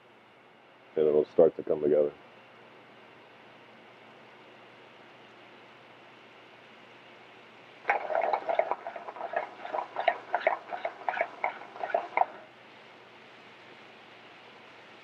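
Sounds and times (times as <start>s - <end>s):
pan knocking on grate: 7.9s - 12.4s
sauce sloshing and crackling in pan: 7.9s - 12.4s.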